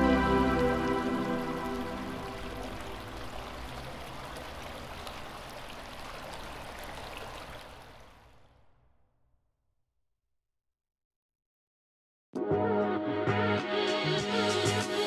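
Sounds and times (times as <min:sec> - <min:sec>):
rain-like hiss with crackles: 0:00.0 - 0:08.4.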